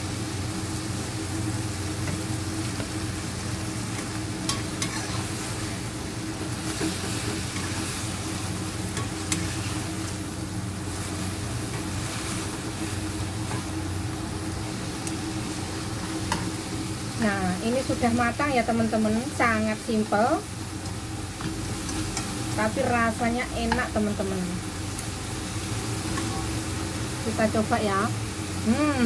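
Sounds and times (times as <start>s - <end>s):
food sizzling in a wok: 0.0s - 29.0s
metal spatula stirring: 4.5s - 5.2s.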